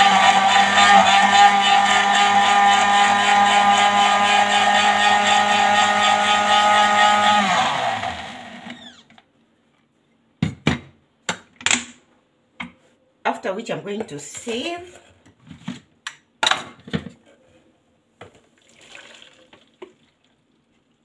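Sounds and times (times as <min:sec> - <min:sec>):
blender motor running: 0:00.0 - 0:09.0.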